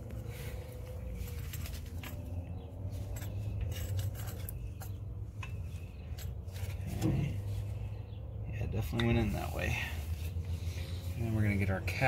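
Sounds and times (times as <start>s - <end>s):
oil filter rubbing and clicking: 0.0s - 7.9s
low steady hum: 0.0s - 12.0s.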